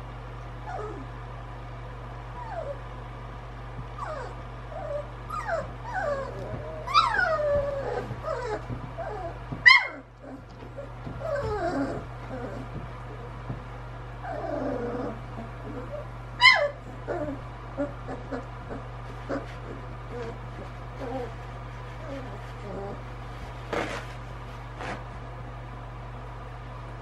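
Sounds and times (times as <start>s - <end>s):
steady low hum: 0.0s - 27.0s
puppies whimpering and squealing: 0.6s - 1.1s, 2.3s - 2.9s, 4.0s - 13.3s, 14.2s - 23.1s.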